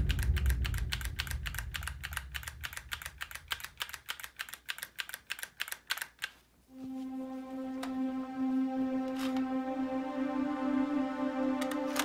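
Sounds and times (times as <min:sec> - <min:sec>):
rapid even clicking: 0:00.0 - 0:06.4.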